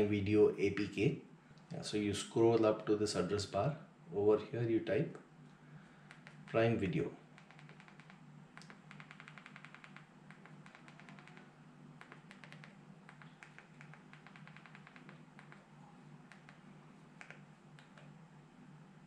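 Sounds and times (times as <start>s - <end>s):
faint steady hum: 0.0s - 19.0s
remote control buttons clicking: 6.1s - 6.6s, 7.4s - 15.7s, 16.3s - 18.1s.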